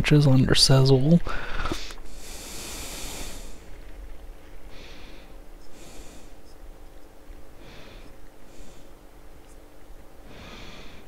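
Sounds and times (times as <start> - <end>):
person breathing in airy puffs: 1.2 - 3.8, 4.7 - 6.4, 7.6 - 9.0, 10.2 - 11.0.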